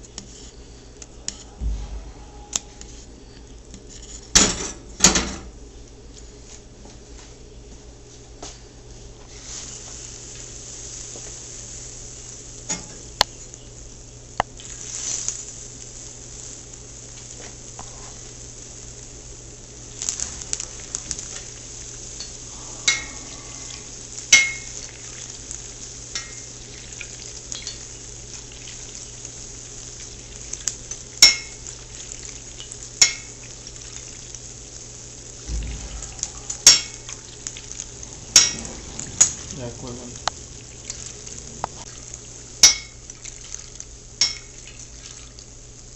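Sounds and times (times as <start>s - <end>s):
food deep-frying in oil: 9.0s - 45.9s
oil popping and crackling: 9.6s - 45.9s.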